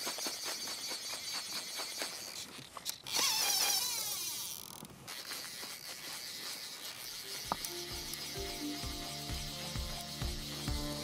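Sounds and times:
fly reel clicking: 0:00.0 - 0:11.0
reel buzzing as line runs off: 0:00.0 - 0:11.0.

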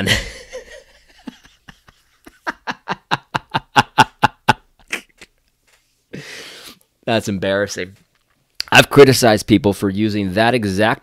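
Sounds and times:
man laughing breathily: 0:00.0 - 0:05.4.

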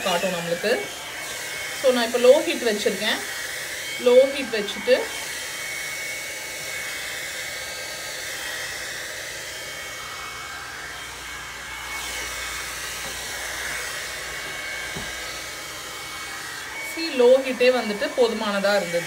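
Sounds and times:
hot air brush blowing: 0:00.0 - 0:19.0.

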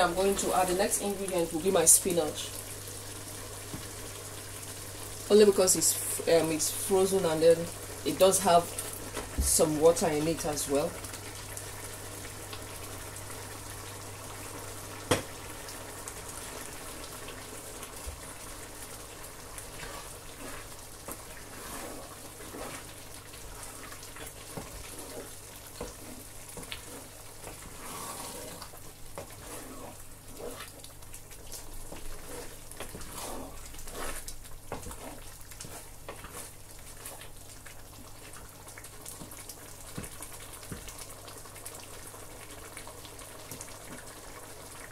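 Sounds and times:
soup stirred with wooden spoon: 0:11.0 - 0:44.9.

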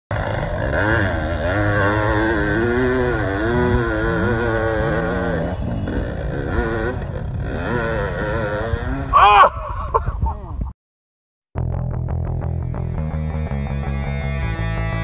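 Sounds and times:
motorcycle engine revving: 0:00.1 - 0:09.3.

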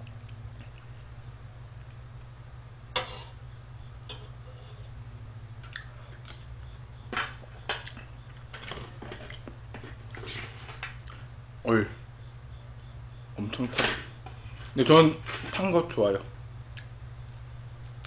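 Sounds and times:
steady low hum: 0:00.0 - 0:18.0
chewing: 0:05.6 - 0:06.4, 0:09.1 - 0:10.3.

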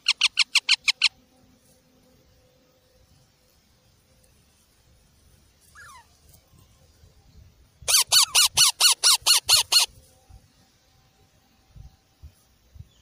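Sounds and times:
parakeet chick squawking: 0:05.8 - 0:06.1, 0:07.9 - 0:09.9.

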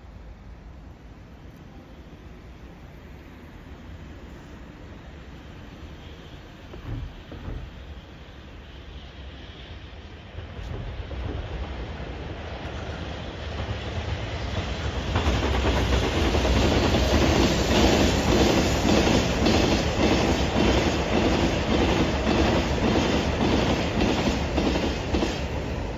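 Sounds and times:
train wheels clattering over joints: 0:06.7 - 0:08.2.

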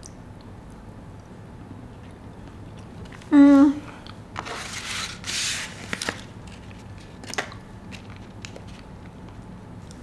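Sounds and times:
soft chewing: 0:00.0 - 0:03.3.

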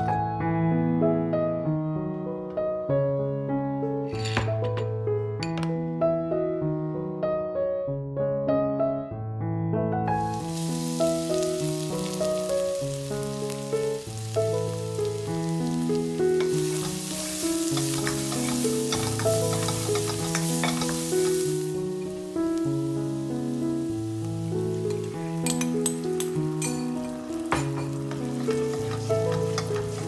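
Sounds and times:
food sizzling in oil: 0:10.1 - 0:30.0.

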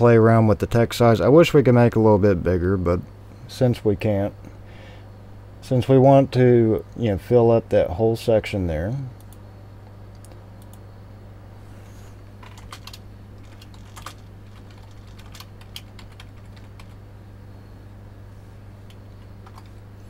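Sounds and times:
steady low hum: 0:00.0 - 0:20.0
keyboard keys tapping: 0:12.4 - 0:17.0, 0:18.9 - 0:19.8.

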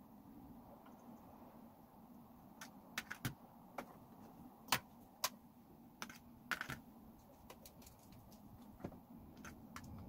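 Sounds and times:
small parts clicking and tapping: 0:06.0 - 0:10.0.

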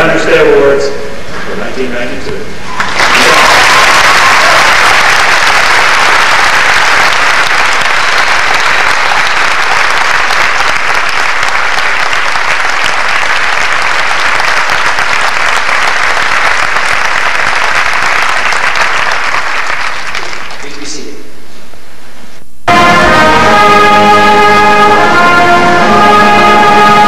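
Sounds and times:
large audience applauding: 0:02.7 - 0:21.1.

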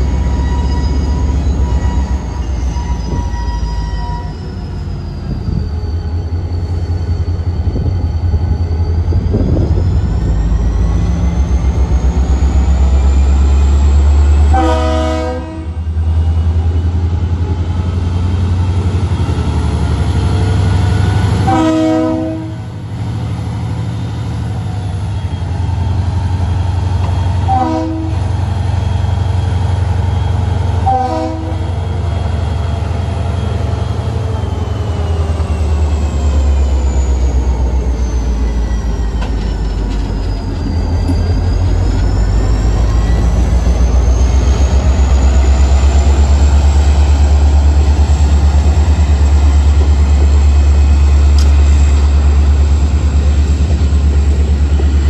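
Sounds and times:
diesel locomotive engine rumbling: 0:00.0 - 0:55.0
locomotive horn blasts: 0:14.5 - 0:15.8, 0:21.4 - 0:22.7, 0:27.4 - 0:28.3, 0:30.8 - 0:31.7.

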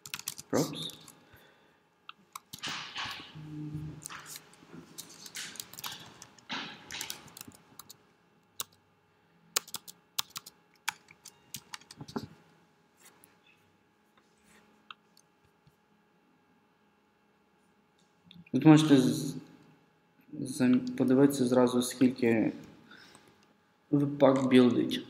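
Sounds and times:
computer keyboard typing: 0:00.0 - 0:01.1, 0:02.3 - 0:03.2, 0:04.0 - 0:08.0, 0:08.6 - 0:08.8, 0:09.6 - 0:12.2.

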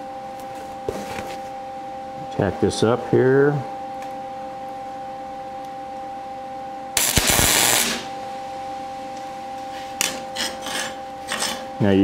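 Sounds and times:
steady electrical hum: 0:00.0 - 0:12.0
welding arc crackling: 0:07.0 - 0:08.2.

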